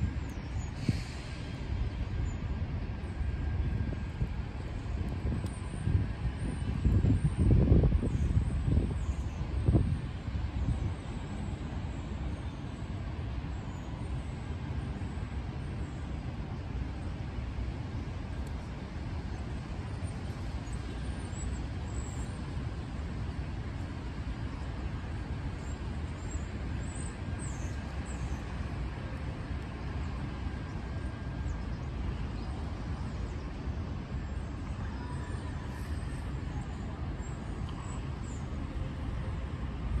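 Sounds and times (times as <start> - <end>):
street traffic on wet roads: 0.0 - 13.5.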